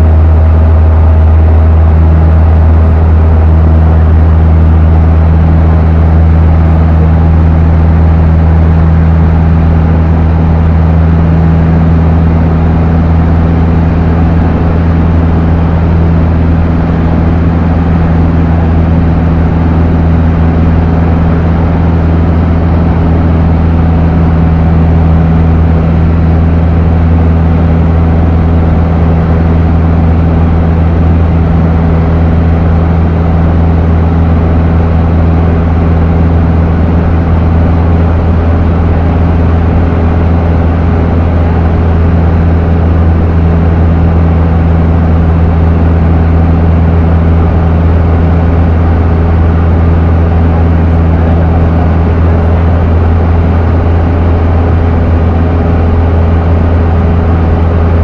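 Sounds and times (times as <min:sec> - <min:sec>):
airplane engine drone: 0:00.0 - 0:58.0.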